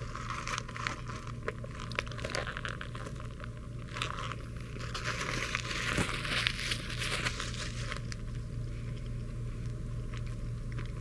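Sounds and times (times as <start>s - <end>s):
paper wrapper crinkling: 0.0s - 8.4s
biting and chewing: 0.0s - 11.0s
low steady hum: 0.0s - 11.0s.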